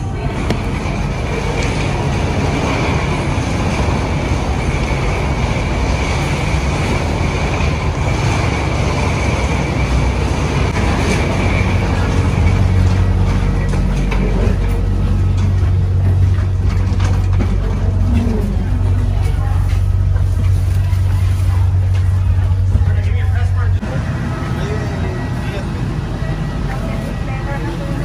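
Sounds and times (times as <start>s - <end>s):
deep engine rumble: 0.0s - 28.0s
aircraft and ramp vehicle noise: 0.1s - 20.9s.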